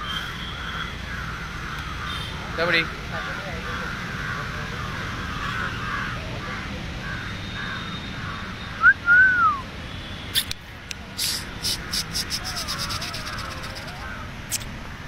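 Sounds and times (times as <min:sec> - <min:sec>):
birds chattering: 0:00.0 - 0:08.8, 0:11.2 - 0:14.7
rising and falling whistle: 0:08.8 - 0:09.6
quick sharp clicks: 0:10.3 - 0:12.7.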